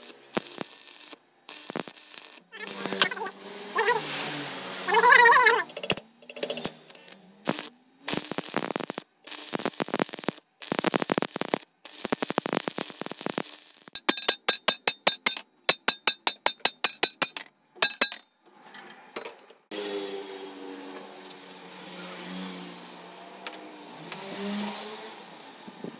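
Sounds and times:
welding arc crackling: 0.0 - 17.3
hammer striking steel on anvil: 14.0 - 18.2.

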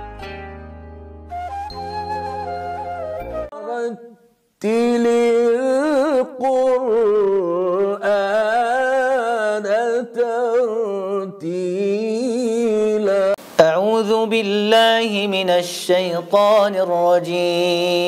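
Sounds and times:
man chanting: 3.5 - 18.0.

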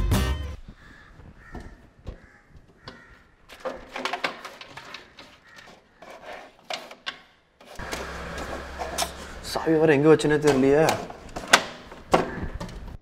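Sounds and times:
objects rattling in wooden cabinet: 3.5 - 9.2, 10.4 - 13.0.

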